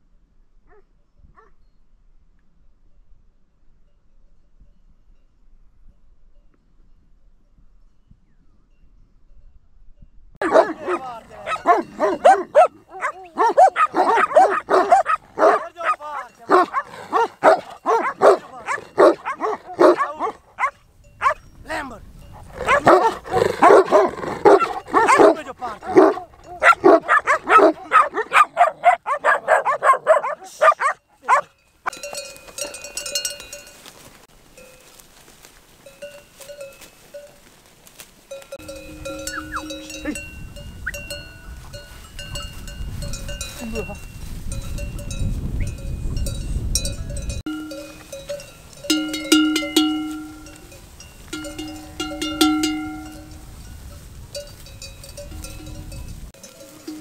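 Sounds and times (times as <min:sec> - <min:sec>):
livestock bells ringing: 0:10.4 - 0:20.4, 0:21.0 - 0:28.2, 0:30.8 - 0:37.5, 0:38.3 - 0:57.0
dog barking rapidly: 0:10.4 - 0:21.4, 0:22.6 - 0:31.5
low windy rumble: 0:20.4 - 0:27.9, 0:38.4 - 0:57.0.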